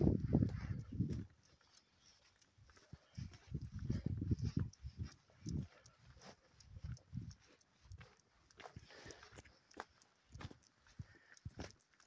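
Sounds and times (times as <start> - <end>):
faint footsteps on tarmac: 0.0 - 12.0.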